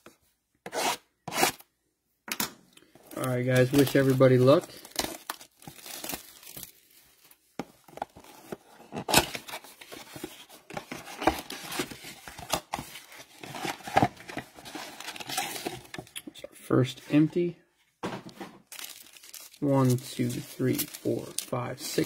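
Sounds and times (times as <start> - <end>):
plastic wrap tearing and crinkling: 3.4 - 7.3, 18.7 - 21.5.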